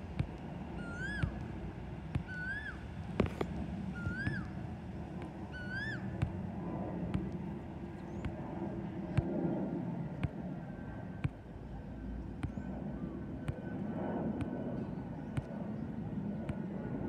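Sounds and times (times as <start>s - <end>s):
distant jet rumble overhead: 0.0s - 17.0s
rising and falling animal call: 0.8s - 1.4s, 2.3s - 2.8s, 3.9s - 4.6s, 5.5s - 6.0s.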